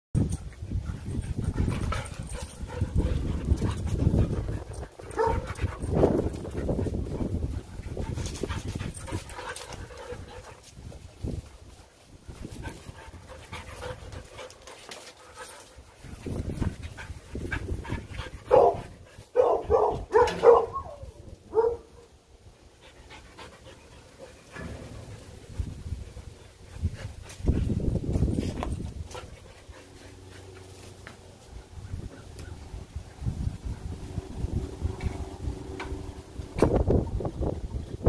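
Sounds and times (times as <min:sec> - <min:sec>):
dogs playing: 0:00.2 - 0:37.9
dogs barking: 0:04.6 - 0:06.0, 0:18.4 - 0:22.1.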